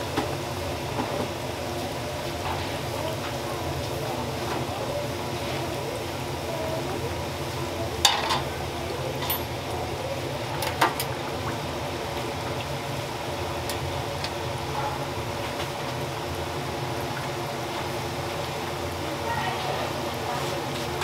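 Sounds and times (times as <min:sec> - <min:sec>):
oil sizzling in a deep fryer: 0:00.0 - 0:21.0.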